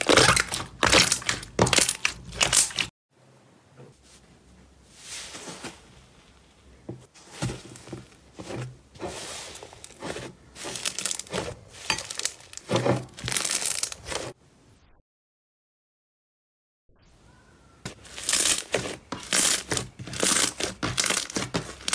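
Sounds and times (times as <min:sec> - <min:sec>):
slime crackling and squelching: 0:00.0 - 0:02.9, 0:07.4 - 0:14.4, 0:17.8 - 0:21.9.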